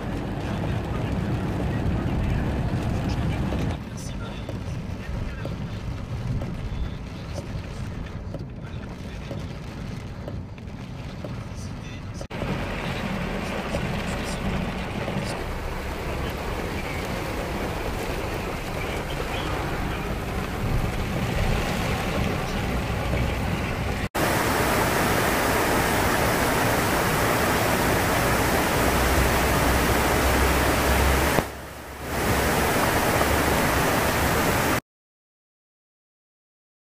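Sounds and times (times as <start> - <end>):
heavy rain on a car: 0.0 - 34.8
road noise inside a car: 0.0 - 34.8
stream rushing over rocks: 12.3 - 34.8.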